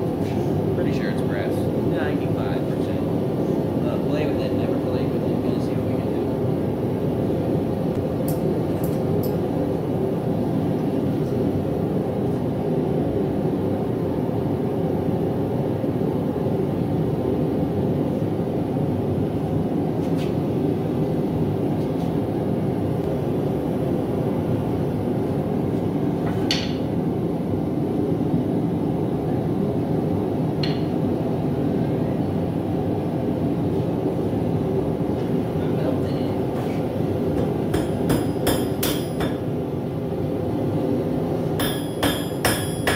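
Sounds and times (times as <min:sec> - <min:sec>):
propane forge burner roaring: 0:00.0 - 0:42.9.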